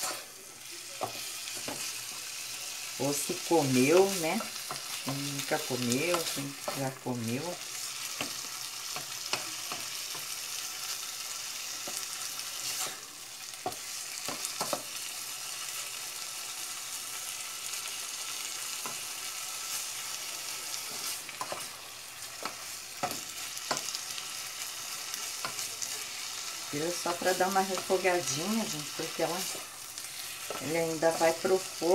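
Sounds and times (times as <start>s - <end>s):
fish sizzling in oil: 0.0s - 31.9s.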